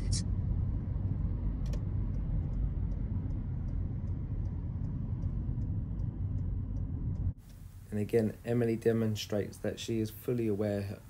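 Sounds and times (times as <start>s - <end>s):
car road and engine rumble: 0.0s - 11.0s
turn indicator ticking: 1.6s - 7.6s.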